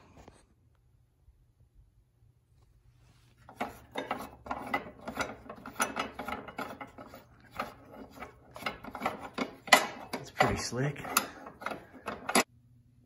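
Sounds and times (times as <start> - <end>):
spanners rattling on sheet metal: 3.5 - 12.5.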